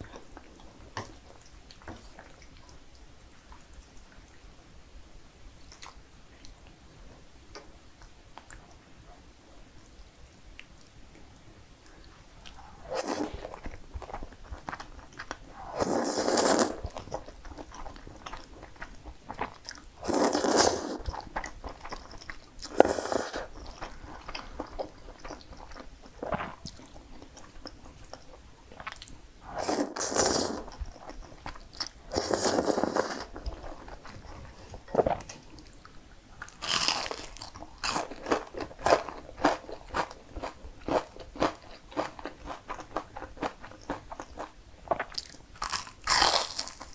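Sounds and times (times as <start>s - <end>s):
crunchy chewing: 12.4s - 46.9s
noodles slurped: 12.5s - 13.8s, 15.5s - 17.2s, 20.0s - 21.8s, 22.6s - 23.9s, 29.5s - 30.8s, 32.1s - 34.2s.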